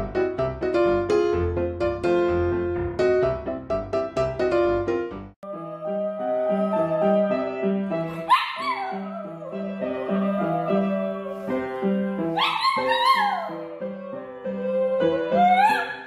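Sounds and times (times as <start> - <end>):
piano playing: 0.0 - 16.0
small dog howling: 5.4 - 7.6, 8.2 - 16.0.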